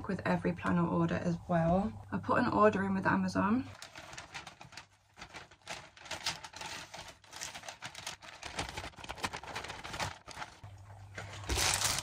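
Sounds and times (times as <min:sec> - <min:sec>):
packing paper crackling and rustling: 0:03.5 - 0:12.0.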